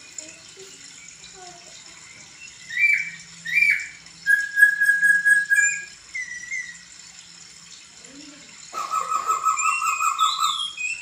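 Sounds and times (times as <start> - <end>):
bird singing whistled phrases: 2.4 - 6.8, 9.0 - 11.0.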